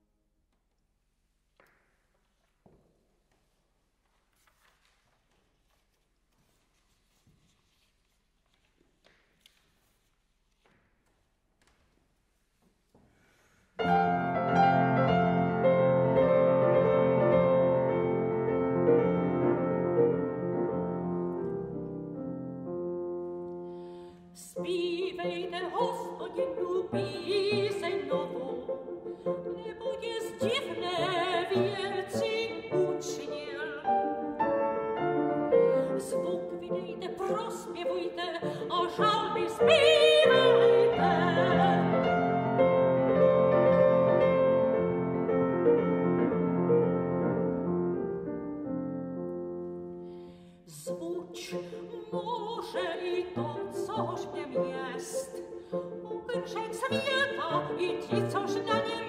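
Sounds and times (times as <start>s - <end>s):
grand piano: 13.5s - 59.0s
soprano singing with vibrato: 24.3s - 34.4s, 35.5s - 42.8s, 50.7s - 59.0s.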